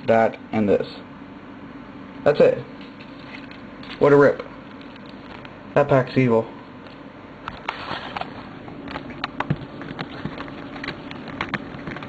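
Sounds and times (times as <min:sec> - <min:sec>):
faint steady hum: 0:00.0 - 0:12.0
cards clicking and rustling: 0:08.9 - 0:12.0.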